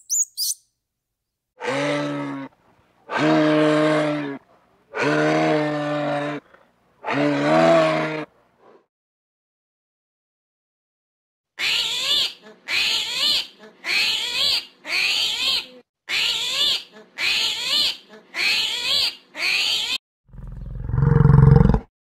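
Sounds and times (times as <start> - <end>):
long deep animal call: 1.6 - 8.3, 20.3 - 21.9.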